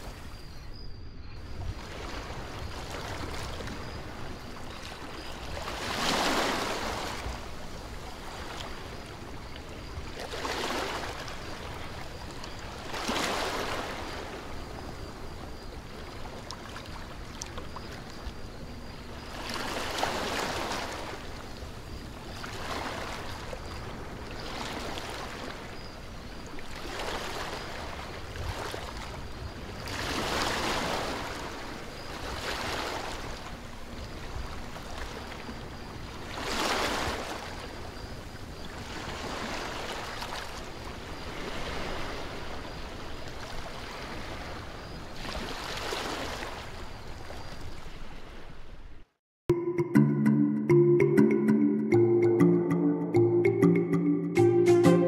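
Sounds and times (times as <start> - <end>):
ocean waves washing in: 1.5 - 12.0.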